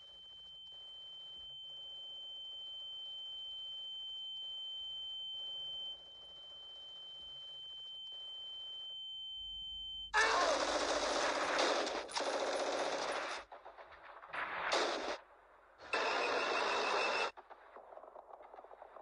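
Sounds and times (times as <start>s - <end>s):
high-pitched ringing tone: 0.0s - 10.2s.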